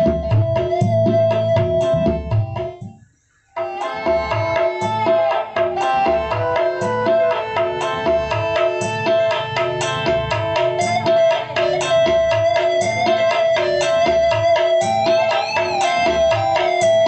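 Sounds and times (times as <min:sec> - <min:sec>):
hand drums and plucked strings music: 0:00.0 - 0:03.0, 0:03.6 - 0:17.0.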